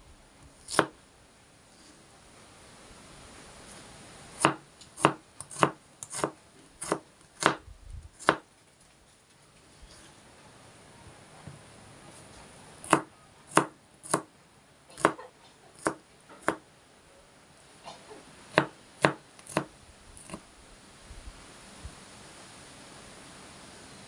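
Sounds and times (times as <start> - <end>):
knife chopping on plastic board: 0.7 - 0.9, 4.4 - 7.6, 8.2 - 8.4, 12.8 - 14.3, 15.0 - 15.2, 15.8 - 16.6, 18.5 - 20.4.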